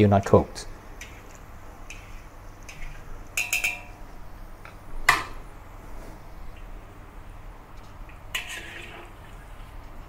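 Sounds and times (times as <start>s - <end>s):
metal skimmer scraping a wok: 1.0s - 4.0s, 8.3s - 9.6s
food deep-frying in oil: 7.7s - 10.0s.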